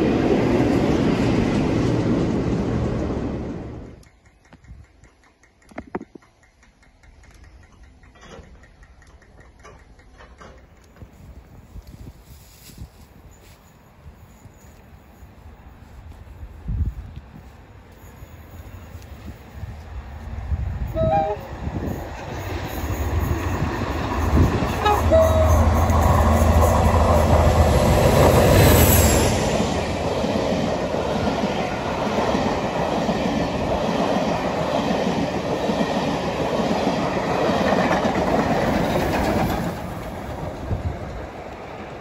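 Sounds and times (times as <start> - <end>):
coaches clattering over rail joints: 4.1 - 11.5
diesel locomotive engine humming: 13.8 - 42.0.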